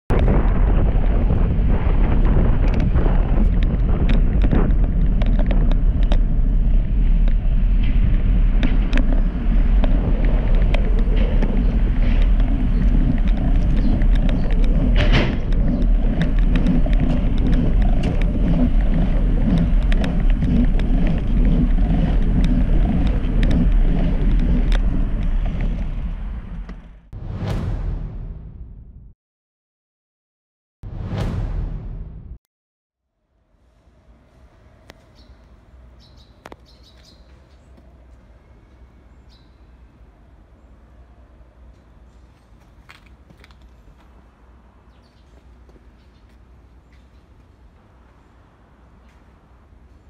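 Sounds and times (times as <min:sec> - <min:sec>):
wind buffeting microphone: 0:00.1 - 0:27.1
tyre noise on pavement: 0:02.1 - 0:27.1, 0:42.3 - 0:44.4.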